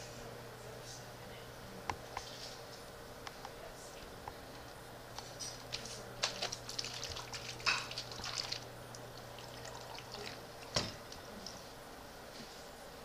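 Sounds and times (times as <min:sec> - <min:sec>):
water gurgling and spattering: 0:06.4 - 0:10.8.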